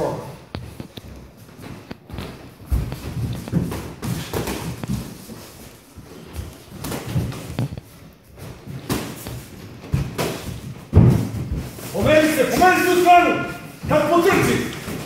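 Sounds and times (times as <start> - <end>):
shuffling footwork on mat: 0.0 - 15.0
boxing gloves thudding: 8.4 - 13.0.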